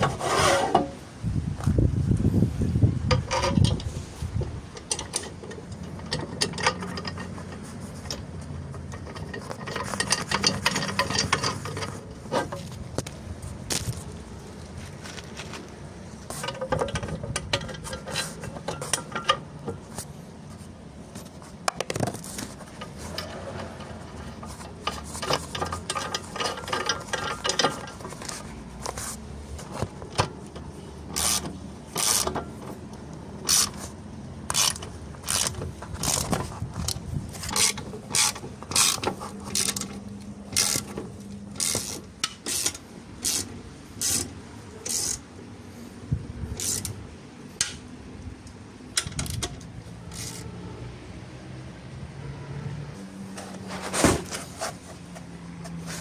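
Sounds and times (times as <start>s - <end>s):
hand ratchet clicking: 31.1s - 32.4s, 34.5s - 36.4s, 37.5s - 45.2s, 46.6s - 47.0s.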